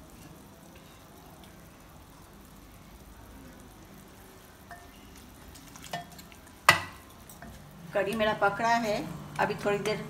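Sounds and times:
kitchen hum: 0:00.0 - 0:10.0
spoon clinking glass bowl: 0:04.7 - 0:05.2.

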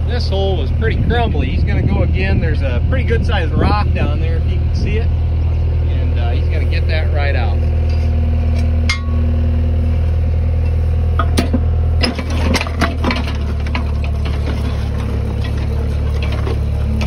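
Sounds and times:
auger engine running: 0:00.0 - 0:17.0
metal knocks and clanks on rock: 0:11.2 - 0:17.0.

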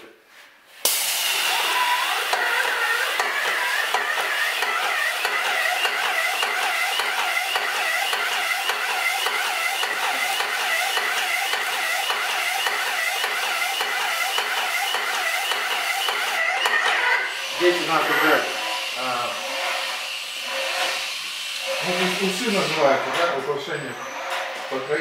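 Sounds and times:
pump pulsing: 0:00.9 - 0:25.0.

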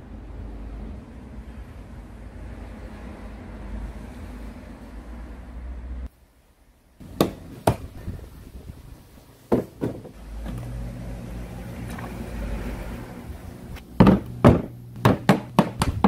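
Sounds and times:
electric pump humming: 0:09.8 - 0:16.0.

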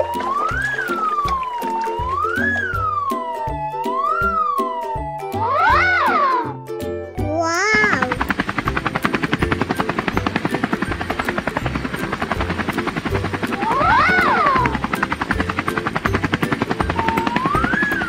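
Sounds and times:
sliding whistle: 0:00.0 - 0:06.5, 0:16.9 - 0:18.0
cartoon helicopter rotor chop: 0:05.4 - 0:06.6, 0:07.5 - 0:18.0.

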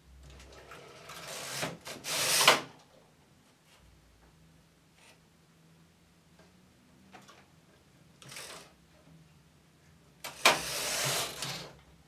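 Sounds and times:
knitting machine carriage sliding: 0:00.4 - 0:02.7, 0:08.2 - 0:08.8, 0:10.3 - 0:11.8.

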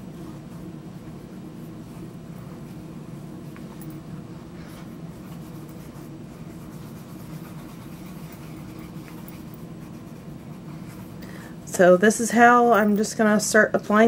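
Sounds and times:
wool dauber rubbing leather: 0:00.0 - 0:11.2
steady low hum: 0:00.0 - 0:14.0.

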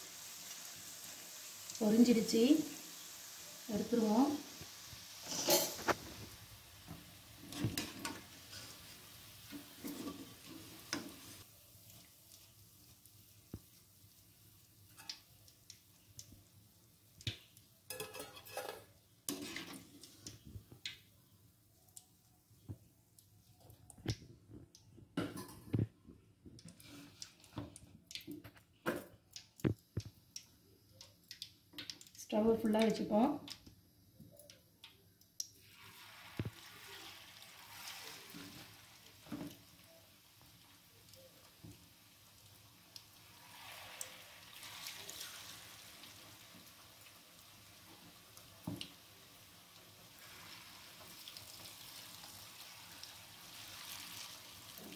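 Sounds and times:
deep-frying sizzle: 0:00.0 - 0:54.9.

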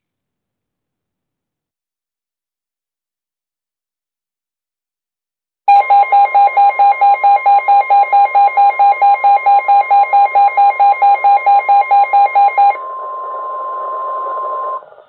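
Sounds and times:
loud pulsing beep: 0:05.7 - 0:14.8
steady warning alarm tone: 0:05.7 - 0:14.8.

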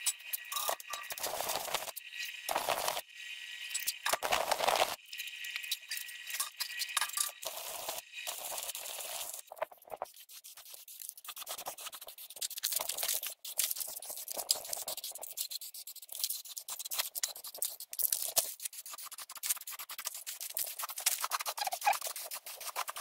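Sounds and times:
clicks and scrapes: 0:05.6 - 0:23.0.

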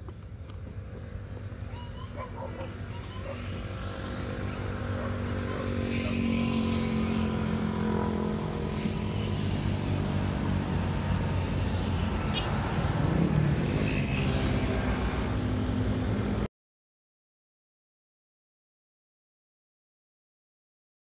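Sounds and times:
engine running: 0:00.0 - 0:16.5.

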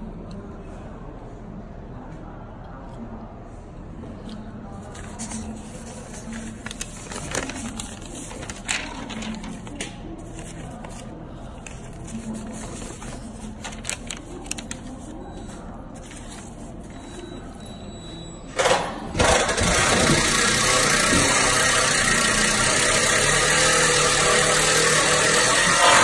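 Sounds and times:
paper rustling and crinkling: 0:04.8 - 0:17.2.

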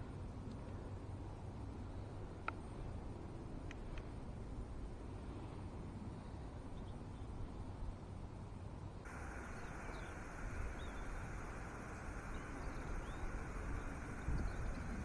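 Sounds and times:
wind rumble on microphone: 0:00.0 - 0:15.0
steady hiss: 0:07.6 - 0:15.0
faint bird chirps: 0:09.1 - 0:15.0.

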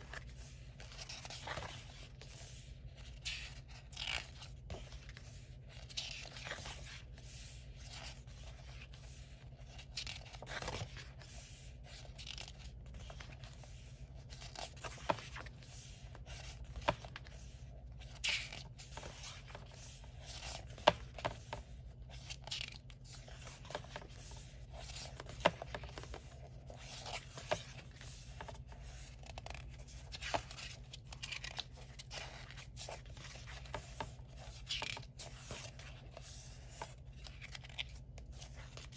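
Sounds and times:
book pages turning and rustling: 0:00.0 - 0:38.9.

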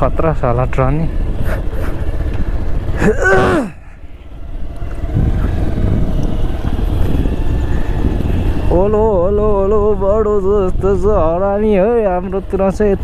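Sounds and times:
motorcycle engine running: 0:00.0 - 0:13.0
rider exclamation: 0:02.9 - 0:04.0.

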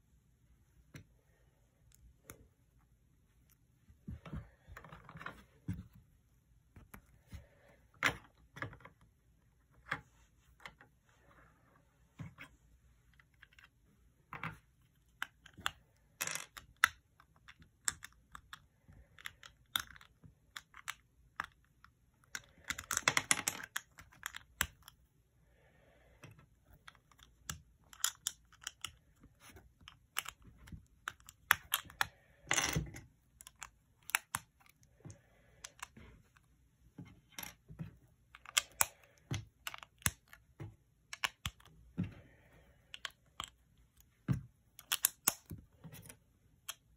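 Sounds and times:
plastic bricks clicking together: 0:15.1 - 0:25.0, 0:26.2 - 0:34.8, 0:38.3 - 0:40.5, 0:41.1 - 0:41.8, 0:44.7 - 0:45.6.

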